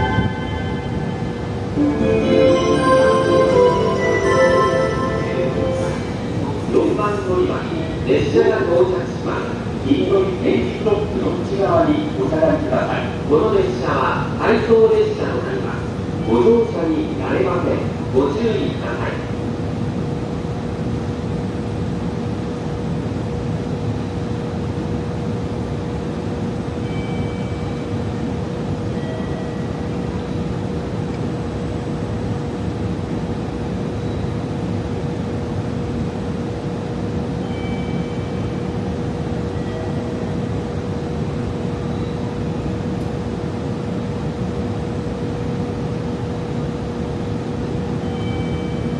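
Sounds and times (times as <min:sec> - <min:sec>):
short high-pitched tones: 0:00.0 - 0:06.8.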